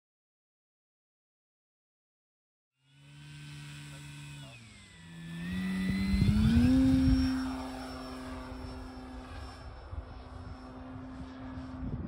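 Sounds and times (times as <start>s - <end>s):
electric model airplane motor whine: 2.8s - 12.0s.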